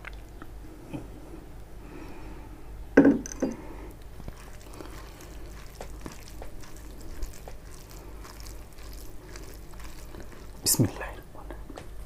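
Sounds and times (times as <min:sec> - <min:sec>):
fingers squishing wet rice: 0:03.9 - 0:11.0.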